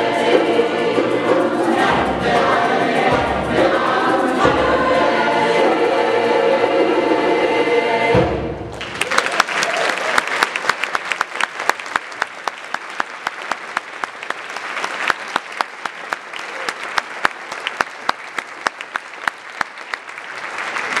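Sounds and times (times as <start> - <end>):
audience applauding: 8.7 - 21.0.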